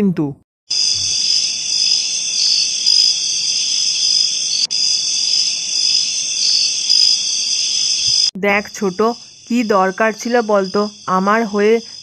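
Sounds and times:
crickets chirping: 0.7s - 12.0s.

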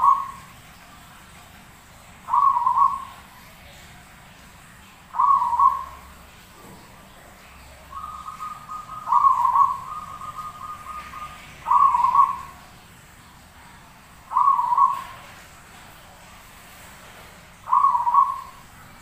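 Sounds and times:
dove cooing: 0.0s - 0.6s, 2.2s - 4.4s, 5.1s - 6.4s, 7.4s - 12.8s, 14.3s - 15.5s, 17.6s - 18.7s.

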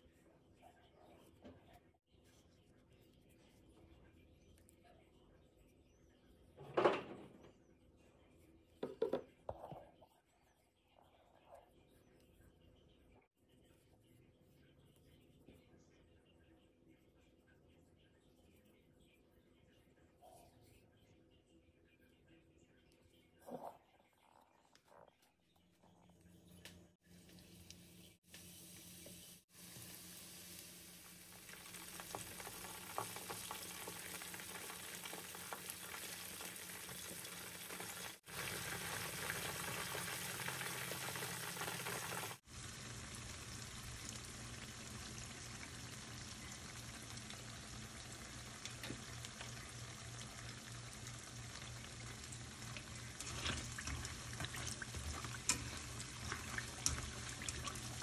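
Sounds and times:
wontons sizzling in oil: 27.1s - 58.0s.

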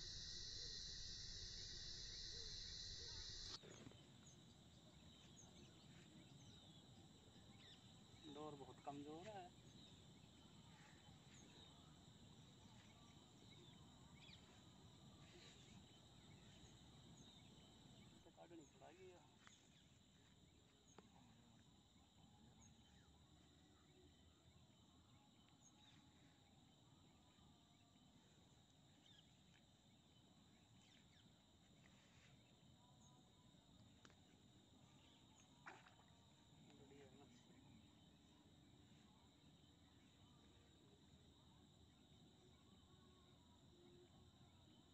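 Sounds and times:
high insect drone: 0.0s - 4.4s
faint bird chirps: 0.0s - 44.9s.

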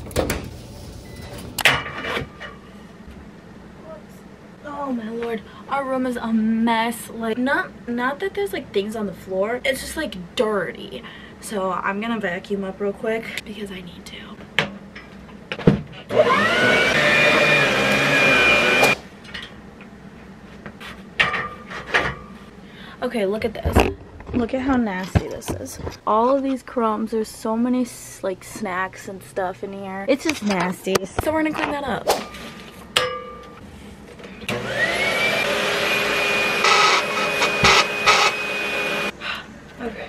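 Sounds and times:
vacuum cleaner running: 16.1s - 19.0s, 34.4s - 39.2s.

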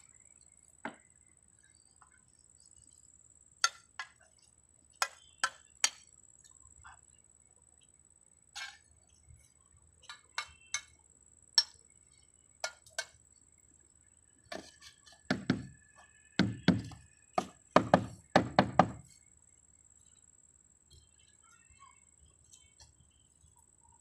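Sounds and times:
knocks on roof tiles: 14.5s - 15.8s, 16.4s - 19.1s.

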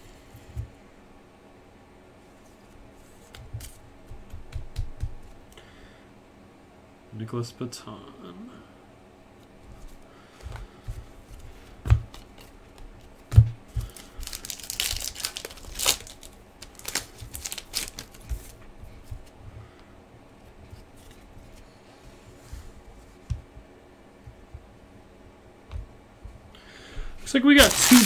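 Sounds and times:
cards being handled: 3.2s - 5.2s, 13.8s - 18.6s, 27.6s - 28.0s
wrapper tearing and crinkling: 13.9s - 18.2s, 27.6s - 28.0s.

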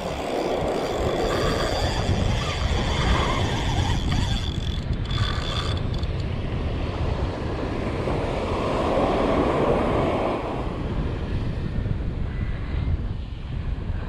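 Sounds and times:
wind buffeting microphone: 0.0s - 14.0s
ocean surf: 6.3s - 11.8s.

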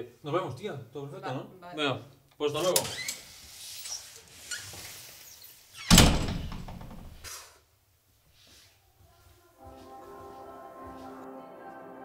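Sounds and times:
wooden door slamming: 5.9s - 7.3s.

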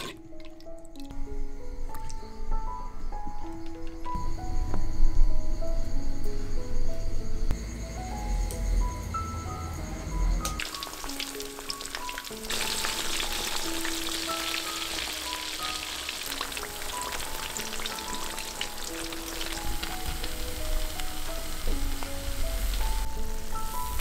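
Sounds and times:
deep-frying oil sizzling: 10.5s - 24.0s.

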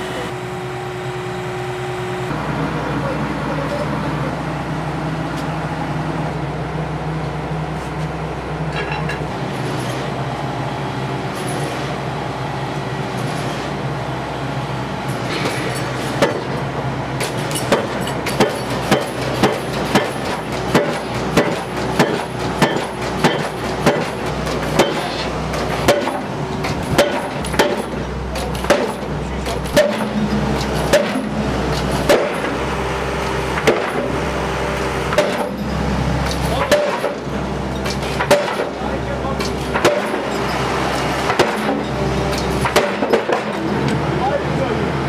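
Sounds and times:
engine running steadily: 0.0s - 45.0s
pile hammer banging: 15.3s - 16.6s, 17.2s - 32.7s, 33.5s - 34.2s, 35.1s - 43.9s.

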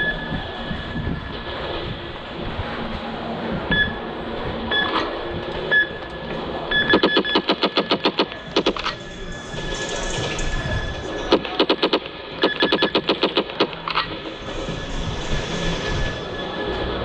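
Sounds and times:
short electronic beeps: 6.7s - 9.8s, 10.8s - 13.9s
electronic laser shots: 6.9s - 9.1s, 11.3s - 14.2s.

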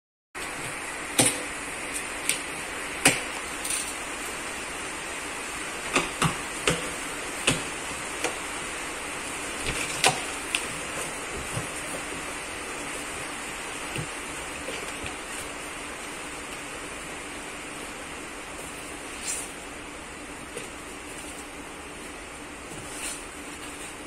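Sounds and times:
steady hiss: 0.4s - 24.0s.

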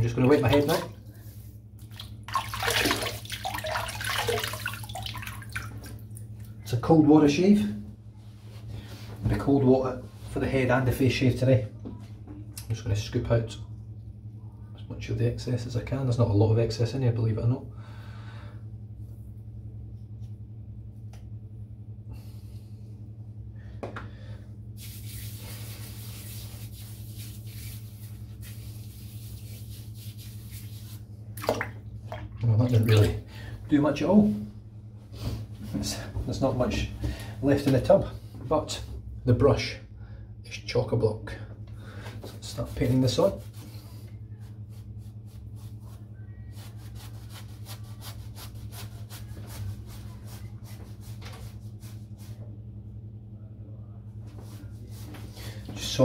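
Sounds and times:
shaving brush scrubbing soap: 24.8s - 31.1s, 42.3s - 52.4s.

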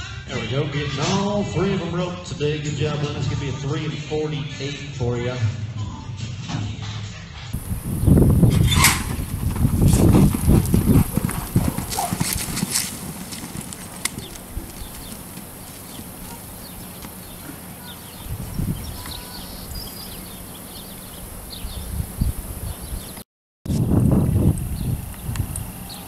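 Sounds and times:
hoofbeats on soft dirt: 7.6s - 21.7s.

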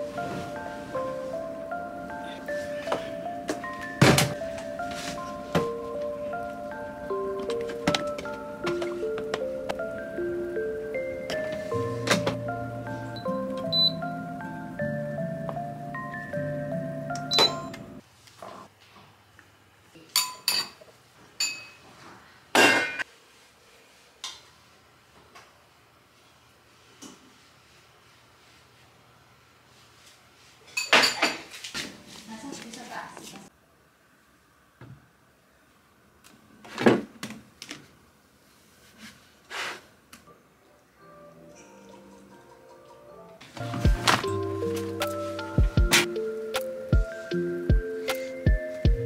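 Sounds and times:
background music: 0.0s - 18.0s, 40.9s - 49.0s.

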